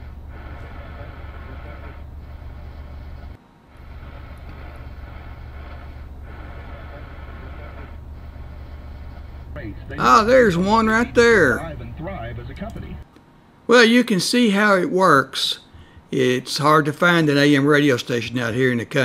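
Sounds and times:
low hum: 0.0 - 13.0
radio static hiss: 0.0 - 13.1.

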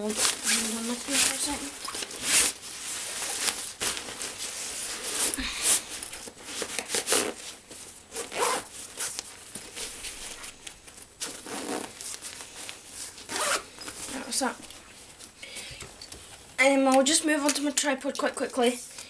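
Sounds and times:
zipper being worked: 0.0 - 10.5, 11.2 - 14.3
nylon rustling: 0.0 - 16.6.

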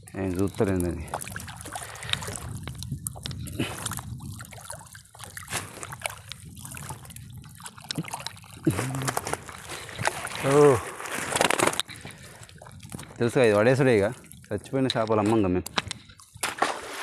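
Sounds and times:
water trickling and splashing: 0.0 - 17.0
wet fishing net being hauled: 0.1 - 14.2, 16.3 - 17.0.

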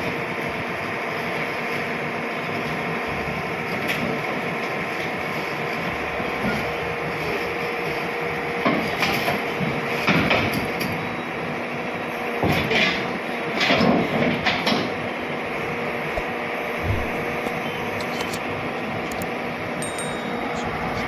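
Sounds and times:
excavator knocks and clanks: 8.6 - 11.0, 12.4 - 15.1
excavator engine humming: 14.3 - 21.0.

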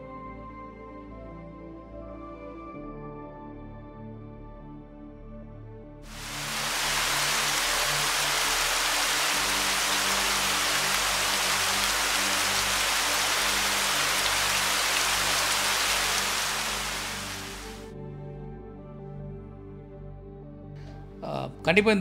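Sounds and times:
soft background music: 0.0 - 22.0
waterfall rushing: 6.1 - 17.9.

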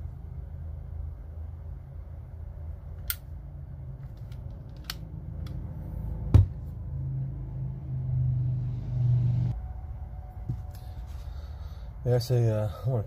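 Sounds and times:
low background rumble: 0.0 - 13.0
steady low hum: 0.0 - 13.0.

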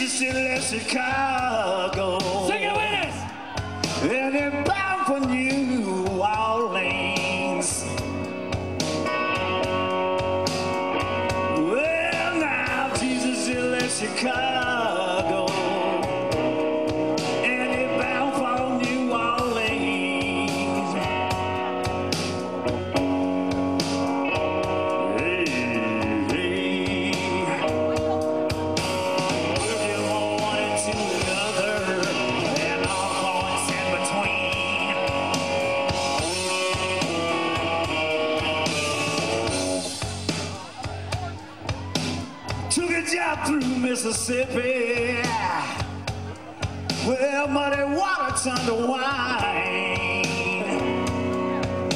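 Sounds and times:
bass guitar: 0.0 - 51.9
drum kit: 0.0 - 51.9
electric guitar lead: 0.0 - 51.9.

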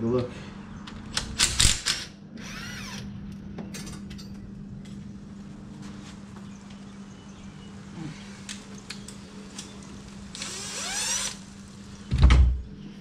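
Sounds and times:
power tool bursts: 10.3 - 11.5.

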